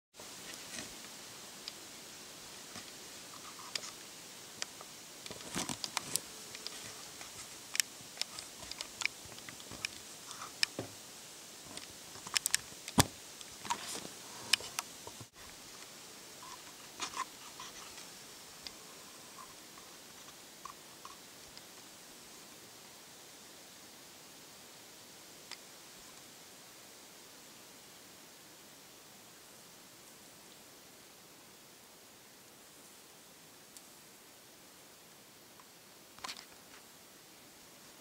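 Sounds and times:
steady hiss: 0:00.2 - 0:38.0
bear feeding clicks and snaps: 0:04.6 - 0:10.8, 0:11.7 - 0:15.2.

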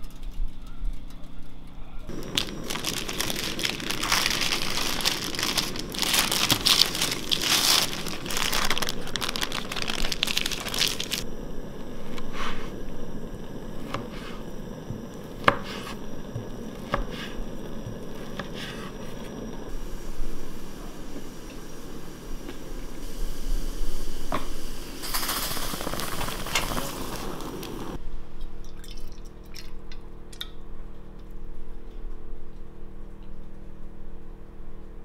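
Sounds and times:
parchment paper crinkling: 0:02.1 - 0:11.2.

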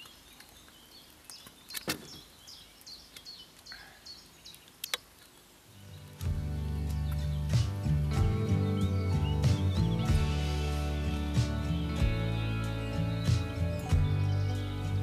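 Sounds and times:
small bird chirping: 0:00.0 - 0:15.0
music: 0:05.9 - 0:15.0.

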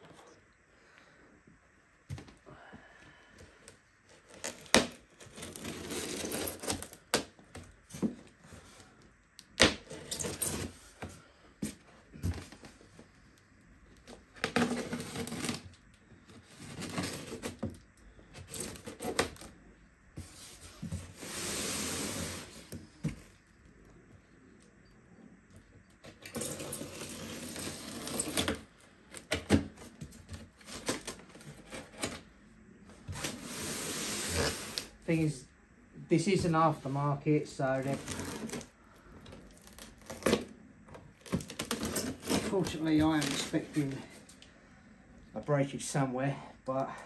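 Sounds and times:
cardboard scraping: 0:04.1 - 0:07.1, 0:14.3 - 0:15.7, 0:16.4 - 0:17.8, 0:20.2 - 0:23.4, 0:26.1 - 0:32.3, 0:32.9 - 0:35.0, 0:37.7 - 0:38.8, 0:41.1 - 0:44.2.

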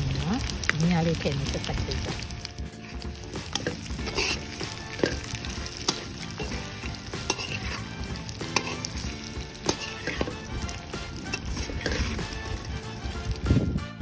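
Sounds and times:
steady sizzle: 0:00.0 - 0:13.8
metal spatula scraping a wok: 0:02.6 - 0:13.4.

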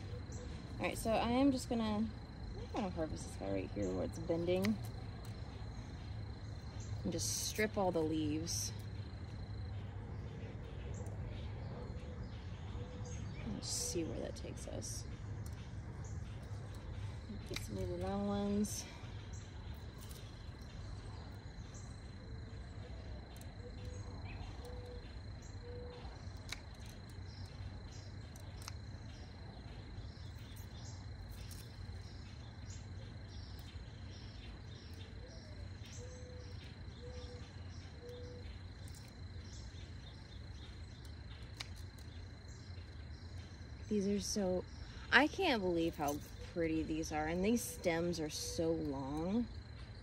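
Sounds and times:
high insect trill: 0:00.0 - 0:50.0
low background rumble: 0:00.0 - 0:50.0
pruners clicking cutting stems: 0:04.1 - 0:05.3, 0:16.7 - 0:18.8
bird cooing: 0:23.7 - 0:26.1, 0:35.2 - 0:38.5.

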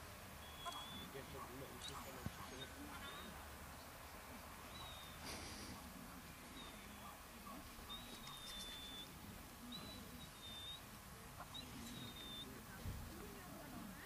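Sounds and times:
high whistled bird calls: 0:00.4 - 0:03.4, 0:04.7 - 0:05.2, 0:07.8 - 0:12.6.

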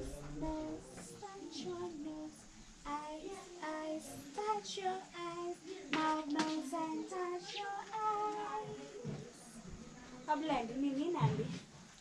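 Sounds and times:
child singing: 0:00.0 - 0:09.6.

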